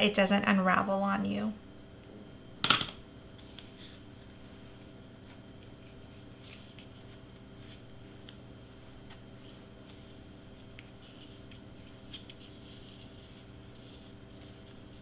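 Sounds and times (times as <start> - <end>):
steady low hum: 0.0 - 15.0
ribbon rustling: 5.3 - 15.0.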